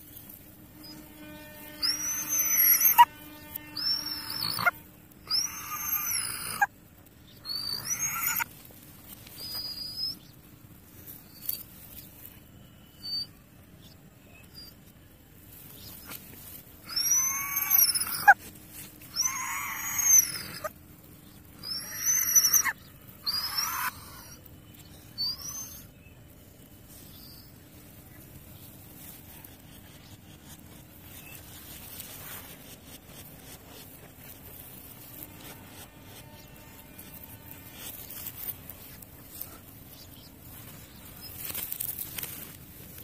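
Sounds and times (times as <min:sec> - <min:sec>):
dog yelping: 0:01.8 - 0:03.1, 0:03.8 - 0:06.7, 0:07.5 - 0:08.5, 0:16.9 - 0:18.4, 0:19.1 - 0:20.7, 0:21.6 - 0:24.4.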